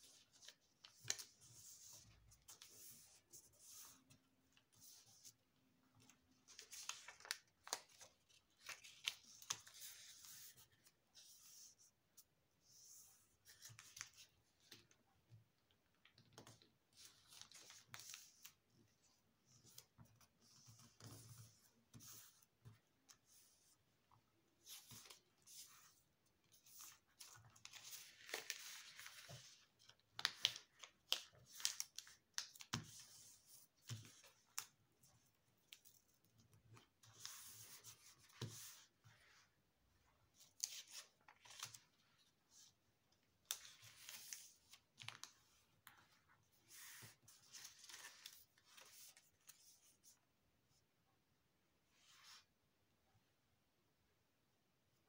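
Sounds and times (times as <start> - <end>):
paper rustling and crinkling: 6.0 - 11.3, 24.6 - 34.8, 40.4 - 50.1.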